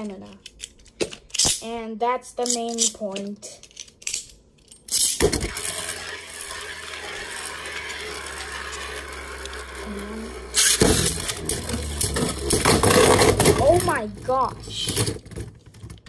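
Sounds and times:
spinning tops clattering: 3.6s - 15.2s
spinning top whirring on plastic: 5.2s - 15.4s.

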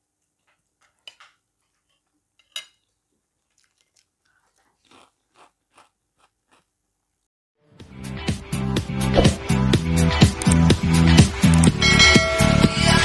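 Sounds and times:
fork clinking on plate: 2.4s - 2.9s
chewing with mouth clicks: 3.4s - 6.7s
crunchy bite: 3.5s - 6.8s.

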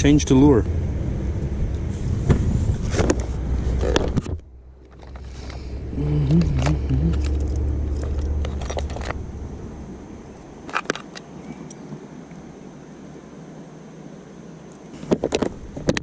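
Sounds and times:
low steady rumble: 0.0s - 16.0s
metallic clicks of fishing tackle: 6.3s - 9.2s.

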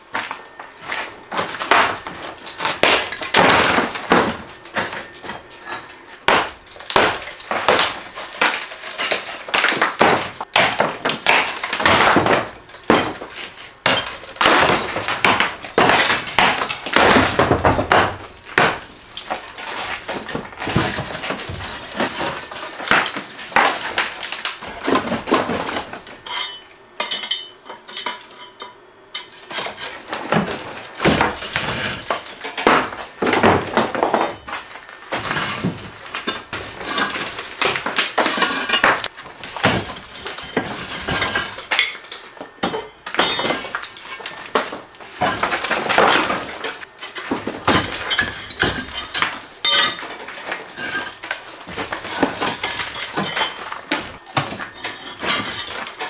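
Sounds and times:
debris rattling: 0.0s - 27.6s, 29.3s - 56.0s.

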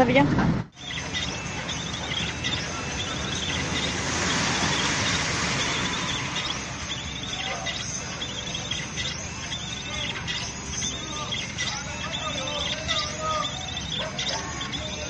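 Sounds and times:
rain and floodwater rushing: 0.9s - 9.4s.

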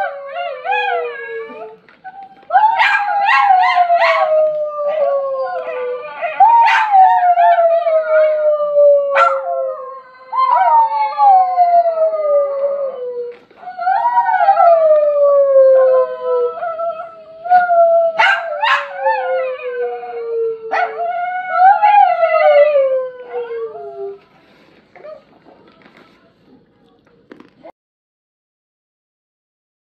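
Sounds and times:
small dog howling: 2.5s - 13.1s.

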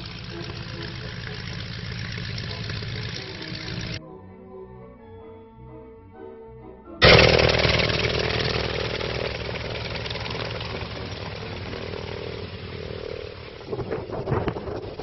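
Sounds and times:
propeller aircraft engine droning: 0.0s - 4.0s, 7.0s - 15.0s.

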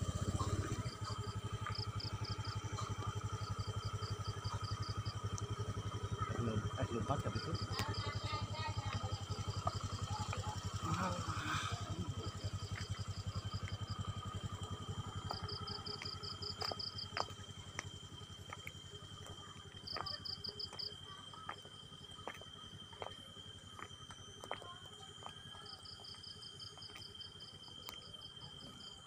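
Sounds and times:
insects trilling: 0.0s - 29.0s
small engine running: 0.0s - 29.0s.

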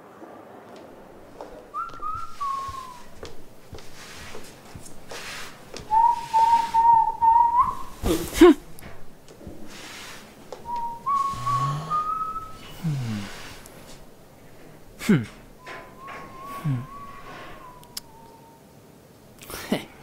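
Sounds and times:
person whistling: 1.7s - 3.2s, 5.9s - 8.1s, 10.6s - 13.3s, 15.6s - 18.6s.

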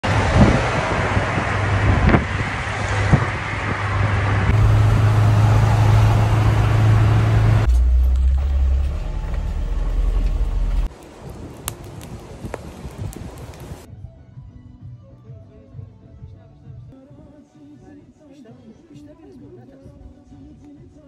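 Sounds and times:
van engine drone: 0.0s - 10.9s
low rumble over dirt track: 0.0s - 13.9s
road noise hiss: 0.0s - 13.9s.

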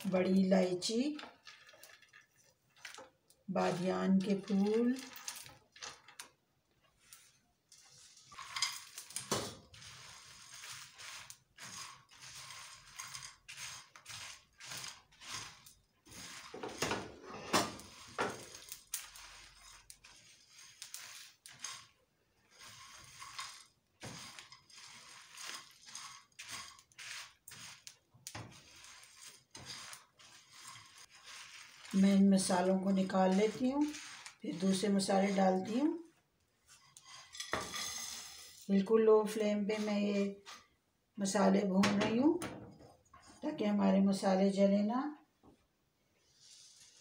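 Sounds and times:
spices rattling in frying pan: 0.0s - 17.0s, 17.6s - 35.8s
spoon stirring in pan: 0.0s - 40.8s.

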